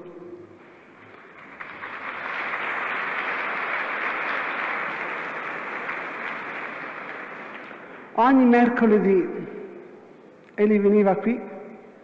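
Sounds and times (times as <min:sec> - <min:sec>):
audience applauding: 0:01.0 - 0:08.1.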